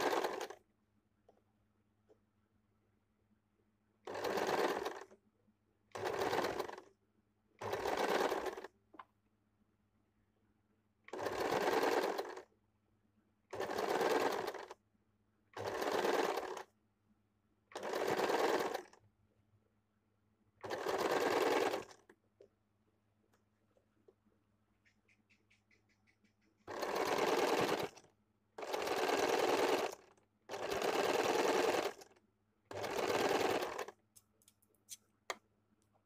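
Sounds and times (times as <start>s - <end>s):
electric sewing machine stitching: 0.0s - 0.6s, 4.1s - 5.2s, 5.9s - 6.9s, 7.6s - 8.7s, 11.1s - 12.5s, 13.5s - 14.8s, 15.6s - 16.7s, 17.7s - 19.0s, 20.6s - 22.1s, 26.7s - 34.0s.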